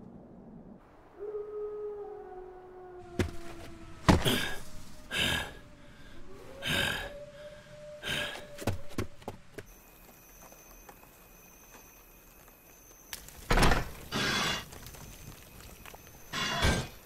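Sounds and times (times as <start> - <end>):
man breathing heavily: 4.1 - 8.6.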